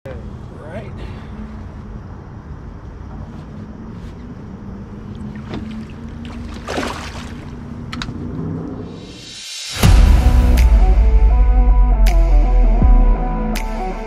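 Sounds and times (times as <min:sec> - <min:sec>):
low hum with water noise: 0:01.9 - 0:08.7
fish splashing in water: 0:05.1 - 0:07.7.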